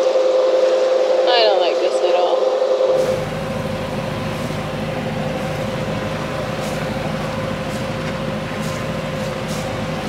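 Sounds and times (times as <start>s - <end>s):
wind: 0.0s - 10.0s
boat engine droning: 2.9s - 10.0s
water hiss: 3.0s - 10.0s.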